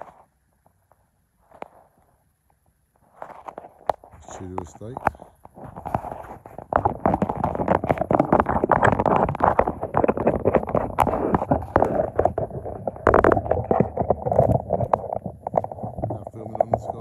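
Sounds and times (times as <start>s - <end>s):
sharp clicks and cracks: 3.4s - 17.0s
wind and rain on umbrella: 4.2s - 17.0s.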